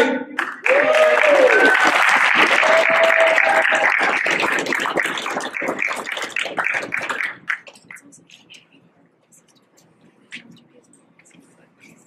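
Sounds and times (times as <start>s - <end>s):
audience applause: 0.4s - 8.0s.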